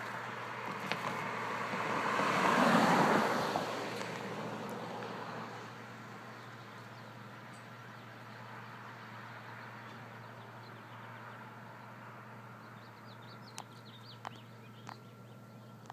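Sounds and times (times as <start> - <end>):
constant low hum: 4.0 - 15.9
small birds chirping: 6.2 - 15.9.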